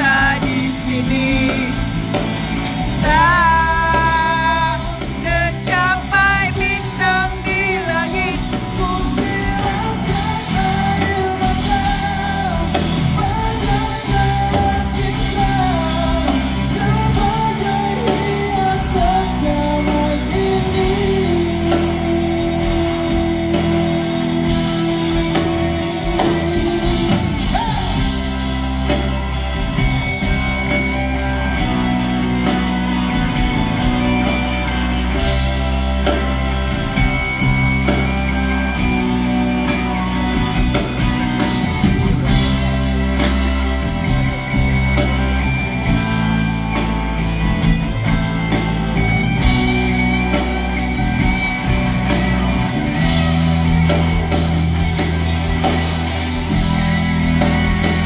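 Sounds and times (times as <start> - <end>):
man singing into microphone: 0.0 - 2.1, 3.0 - 28.0
live pop band playing: 0.0 - 58.0.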